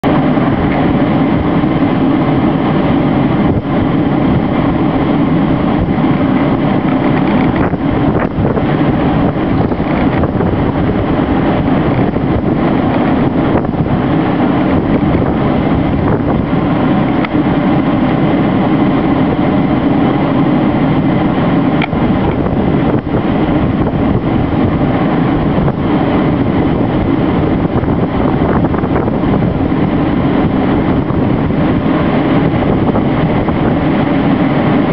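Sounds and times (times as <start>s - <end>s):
wind on microphone: 0.0s - 34.9s.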